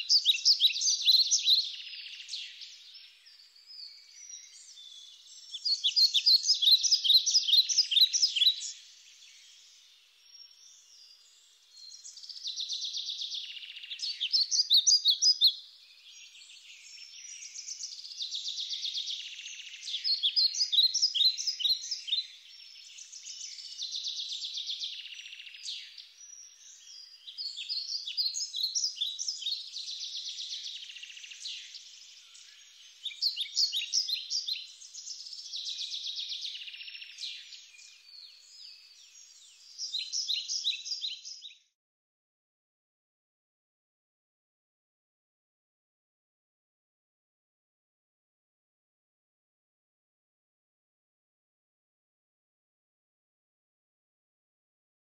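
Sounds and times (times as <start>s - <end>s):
songbirds chirping and trilling: 0.0s - 41.8s.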